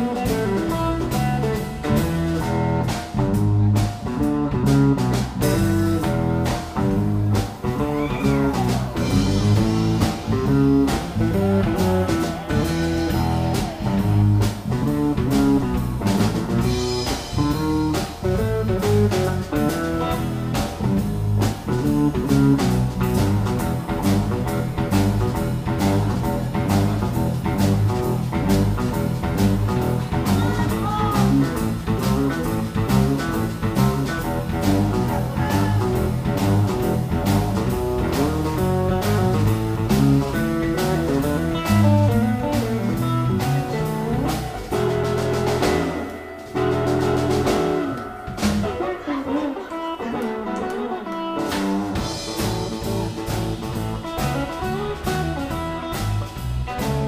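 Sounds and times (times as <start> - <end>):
live blues band playing: 0.0 - 57.0.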